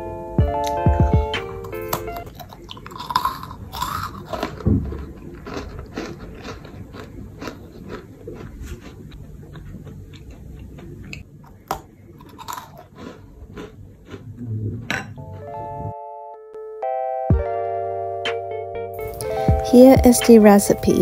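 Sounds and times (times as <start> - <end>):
cookie being bitten and chewed: 1.6 - 14.4.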